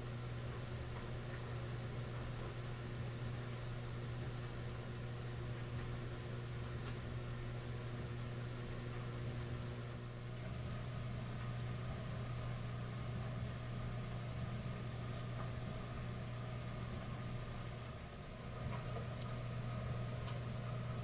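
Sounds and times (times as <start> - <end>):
faint high whistle-like tone: 10.2 - 11.8.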